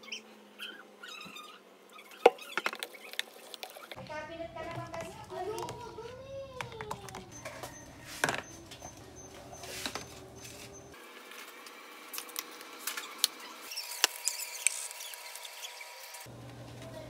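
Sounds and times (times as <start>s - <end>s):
plastic tubs clicking on countertop: 4.6s - 10.7s.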